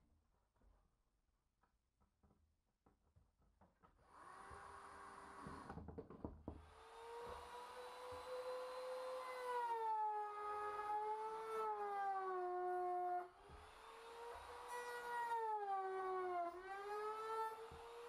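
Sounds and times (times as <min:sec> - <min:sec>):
power tool running: 0:06.6 - 0:18.0
router cutting into wood: 0:06.6 - 0:18.0.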